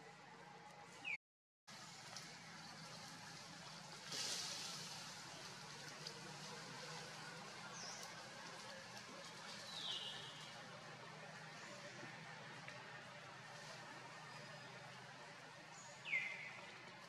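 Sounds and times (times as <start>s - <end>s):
steady forest hiss: 1.7s - 17.0s.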